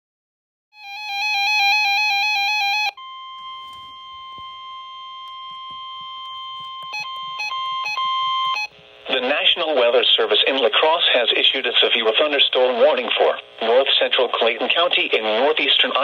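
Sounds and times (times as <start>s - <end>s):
rapid warbling alarm beep: 2.7s - 8.7s
steady radio warning tone: 3.4s - 16.0s.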